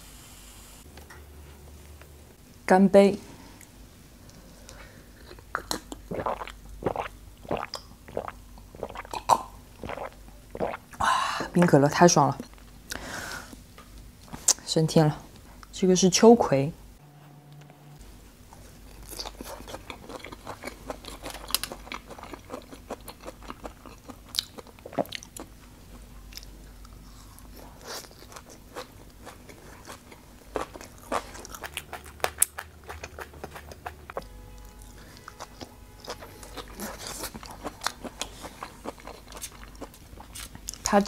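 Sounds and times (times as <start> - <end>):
biting and chewing: 18.9 - 25.5, 26.4 - 34.2.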